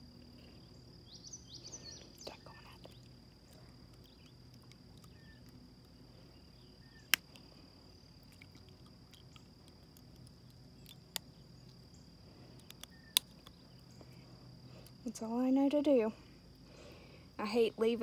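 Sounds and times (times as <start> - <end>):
insect trilling: 0.0 - 18.0
sharp clicks: 7.0 - 7.5, 12.6 - 13.6.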